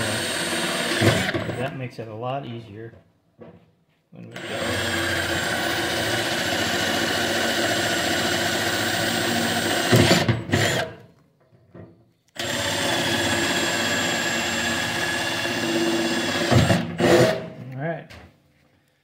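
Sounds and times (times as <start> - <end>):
cordless drill drilling into steel: 0.0 - 1.6, 4.3 - 11.0, 12.4 - 17.4.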